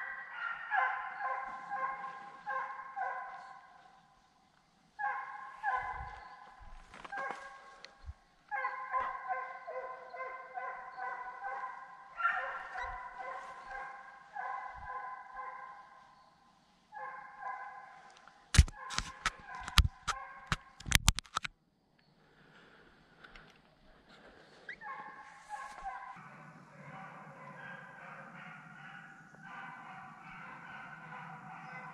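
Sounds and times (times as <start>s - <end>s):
hounds baying: 0.0s - 4.0s, 5.0s - 16.1s, 17.0s - 18.1s, 24.8s - 31.9s.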